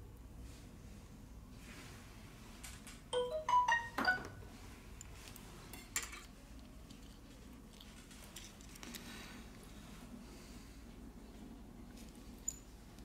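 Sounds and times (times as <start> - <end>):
rising notification chime: 3.2 - 4.4.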